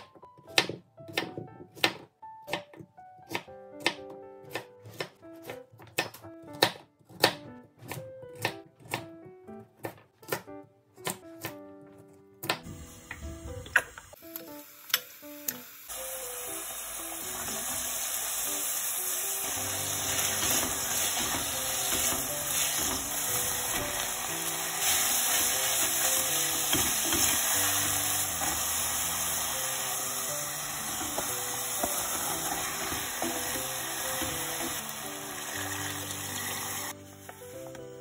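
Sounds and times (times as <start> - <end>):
food sizzling in hot oil: 14.2 - 37.2.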